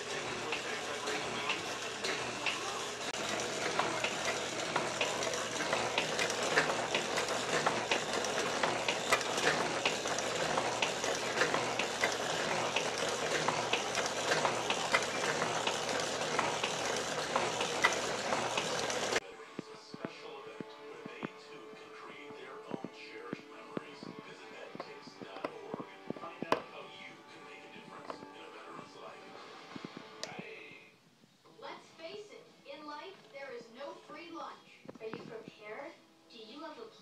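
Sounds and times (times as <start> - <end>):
metal shaper clattering: 0.0 - 19.2.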